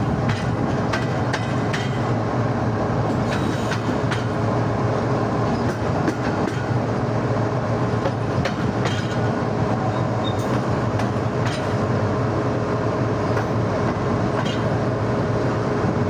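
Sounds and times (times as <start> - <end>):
wheels clicking over rail joints: 0.0 - 2.2, 7.8 - 11.9, 13.3 - 14.8
locomotive engine humming: 0.0 - 16.0.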